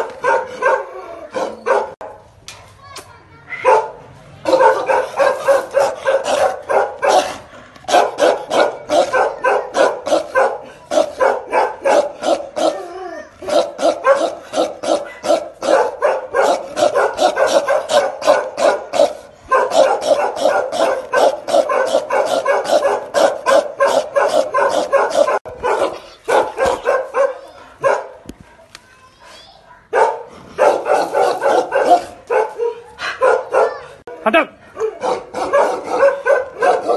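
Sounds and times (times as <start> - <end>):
dogs barking aggressively: 0.0 - 2.2, 3.6 - 28.2, 29.8 - 36.9.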